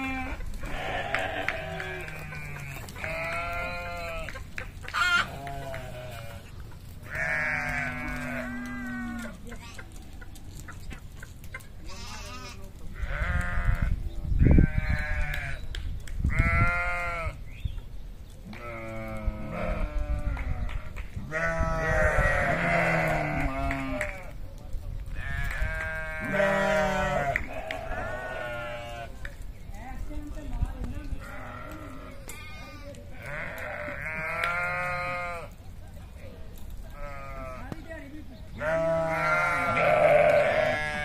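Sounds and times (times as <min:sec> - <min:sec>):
sheep bleating: 0:00.0 - 0:04.3, 0:04.9 - 0:06.5, 0:07.1 - 0:09.4, 0:11.8 - 0:15.6, 0:16.3 - 0:17.4, 0:21.3 - 0:24.3, 0:25.2 - 0:29.1, 0:31.2 - 0:35.6, 0:36.9 - 0:37.7, 0:38.6 - 0:41.0.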